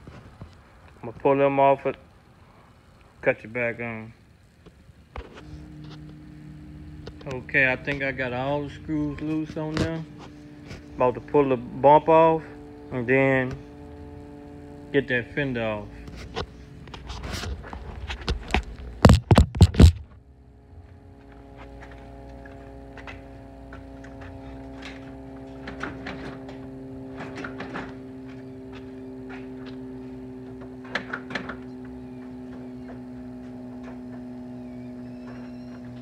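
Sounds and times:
steady pitched hum: 0:00.0 - 0:36.0.

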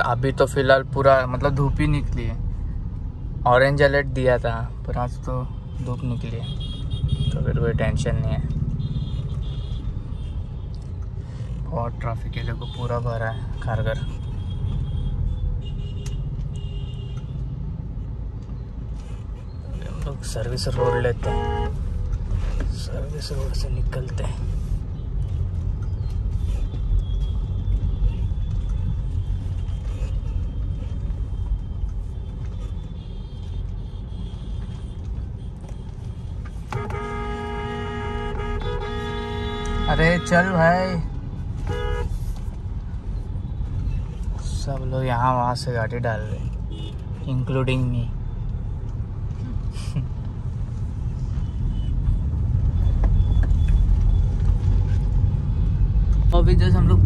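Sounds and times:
car rumble from inside: 0:13.4 - 0:57.0.

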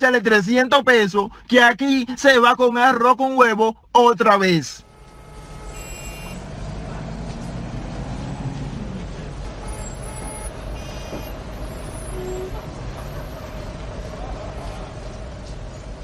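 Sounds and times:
short high beeps: 0:05.7 - 0:06.4.

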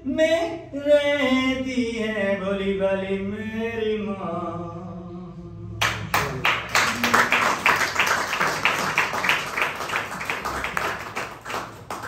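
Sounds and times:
hands clapping rhythmically: 0:05.8 - 0:12.0.

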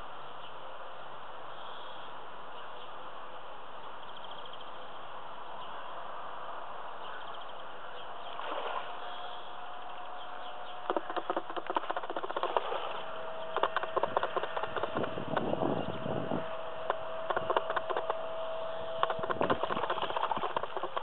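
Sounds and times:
steady hum: 0:00.0 - 0:21.0
steady outdoor hiss: 0:00.0 - 0:21.0
faint bird chirps: 0:01.5 - 0:03.0, 0:07.0 - 0:11.3
sharp knocks and rustles: 0:10.7 - 0:18.2, 0:19.0 - 0:21.0.

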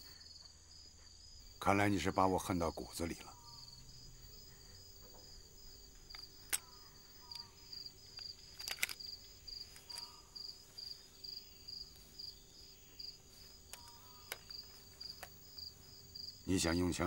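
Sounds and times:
insect chirping: 0:00.0 - 0:17.0
sharp clicks: 0:05.9 - 0:10.2, 0:13.6 - 0:15.4.

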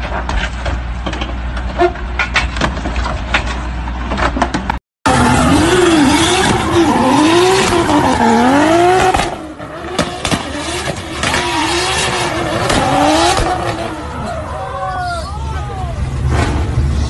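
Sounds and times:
car engine revving: 0:05.1 - 0:14.5.

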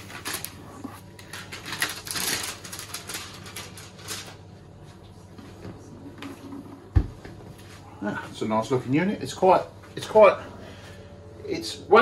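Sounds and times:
plastic film crinkling: 0:00.0 - 0:04.5.

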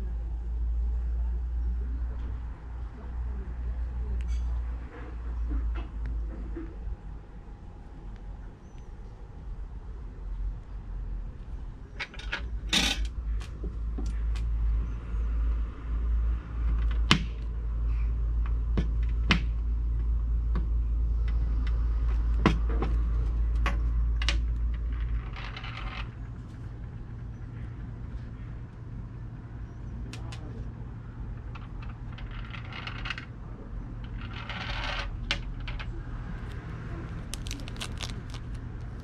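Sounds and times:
scraping rustles: 0:34.1 - 0:39.0.

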